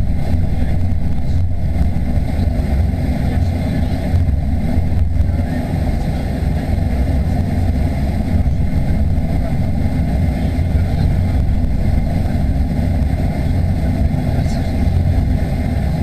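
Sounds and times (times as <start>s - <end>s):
aircraft cabin engine rumble: 0.0s - 16.0s.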